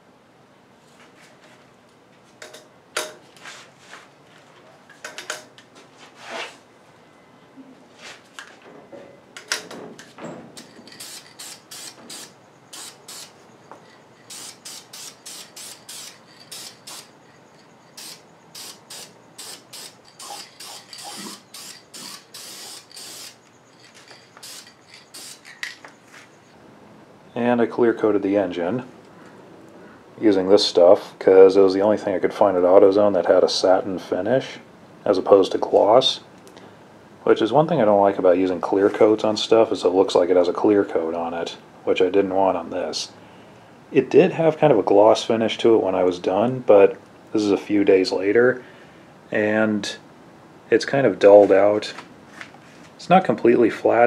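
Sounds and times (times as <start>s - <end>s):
metal tool clicks and knocks: 2.4s - 3.2s, 4.9s - 5.6s
aerosol spray can hissing: 18.0s - 23.4s.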